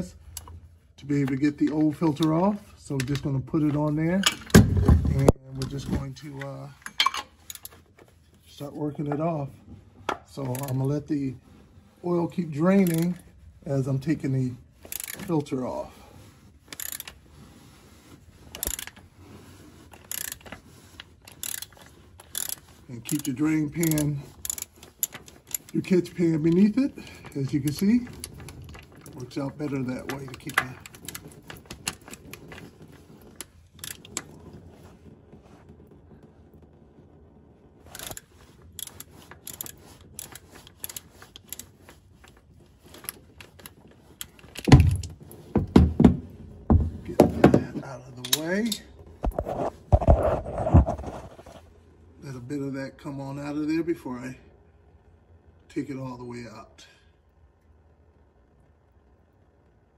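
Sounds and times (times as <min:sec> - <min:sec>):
socket ratchet clicking: 0:12.8 - 0:13.1, 0:16.7 - 0:17.1, 0:20.0 - 0:20.5, 0:21.3 - 0:25.7, 0:38.0 - 0:38.2.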